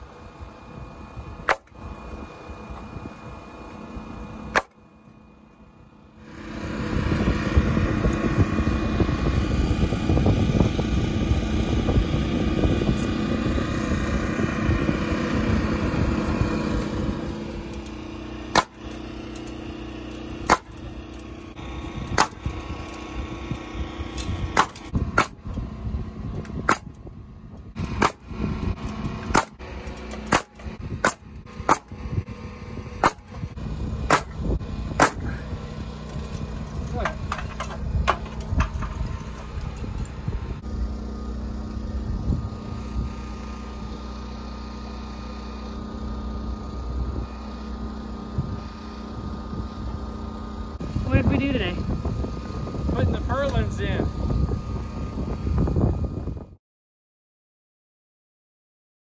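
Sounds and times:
steady mechanical running noise: 0.0s - 56.6s
nail gun firing: 1.4s - 1.8s, 4.5s - 4.8s, 18.5s - 19.6s, 20.4s - 20.8s, 22.1s - 22.6s, 24.2s - 25.4s, 26.6s - 27.0s, 28.0s - 28.3s, 29.2s - 32.0s, 33.0s - 33.4s, 34.0s - 34.4s, 35.0s - 35.4s.

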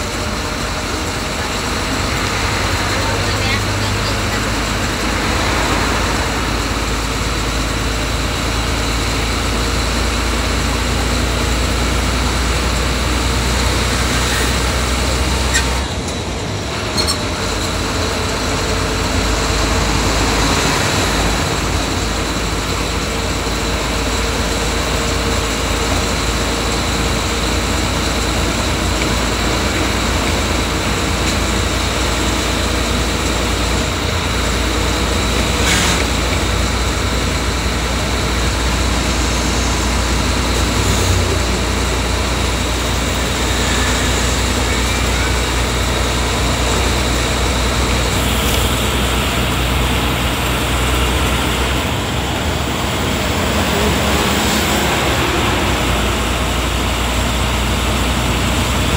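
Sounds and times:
bus engine and road noise: 0.0s - 58.9s.

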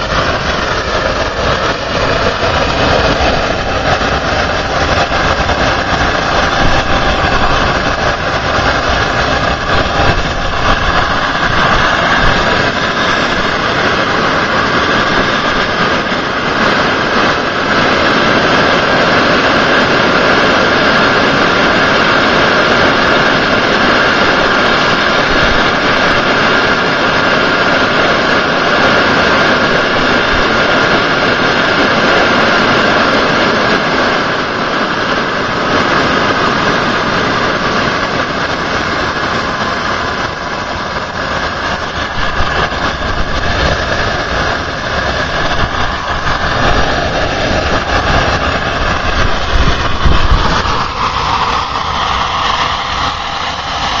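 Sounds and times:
jet engine running: 0.0s - 54.0s.

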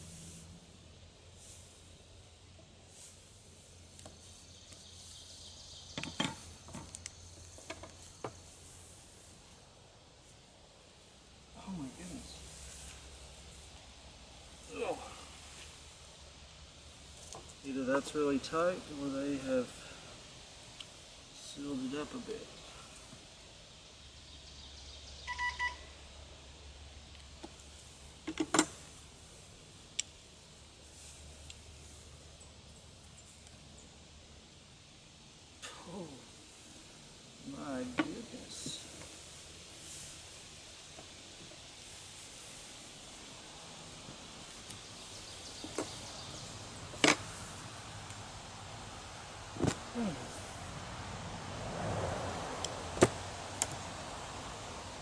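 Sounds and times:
sharp cracks and knocks: 49.6s - 49.9s, 53.0s - 53.8s.

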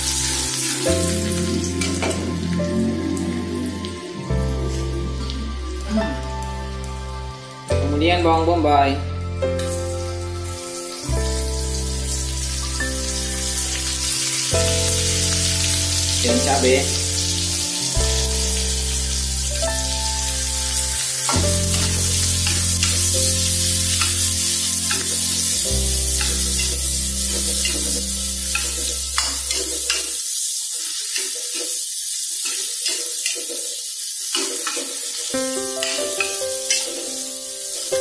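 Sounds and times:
onion sizzling in hot oil: 0.0s - 7.7s, 9.6s - 38.0s
background music with low notes: 0.0s - 30.2s, 34.4s - 38.0s
spatula scraping a wok: 21.2s - 37.9s.

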